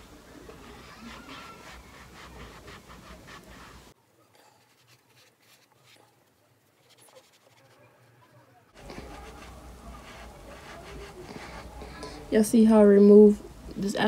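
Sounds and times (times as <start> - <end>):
cloth rubbing sandal: 0.5 - 4.0, 8.8 - 11.8.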